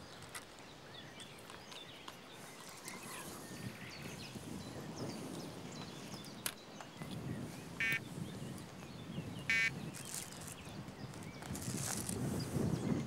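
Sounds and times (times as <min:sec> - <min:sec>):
birds chirping: 0:00.0 - 0:13.0
handling rustle: 0:00.1 - 0:03.5, 0:09.8 - 0:12.9
bite alarm buzzy beeps: 0:09.5 - 0:09.7.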